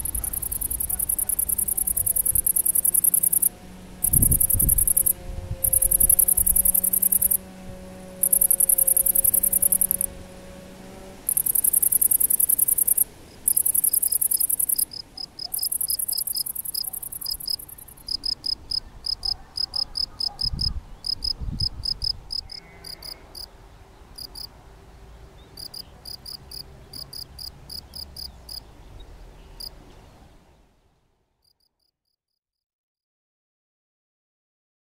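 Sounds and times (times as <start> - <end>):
bush-cricket high continuous buzz: 0.0 - 23.5, 24.2 - 24.6, 25.5 - 28.6
field cricket chirping: 0.0 - 23.5, 24.2 - 24.5, 25.5 - 28.6.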